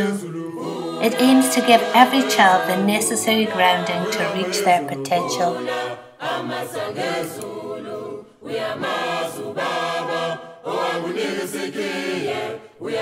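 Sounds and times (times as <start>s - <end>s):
choir singing in harmony: 0.0s - 13.0s.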